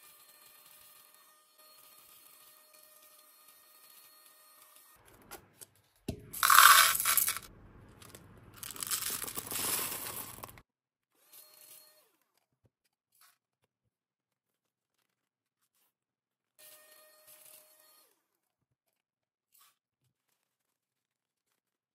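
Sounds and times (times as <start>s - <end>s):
beads rattling into plastic cup: 6.4s - 10.6s.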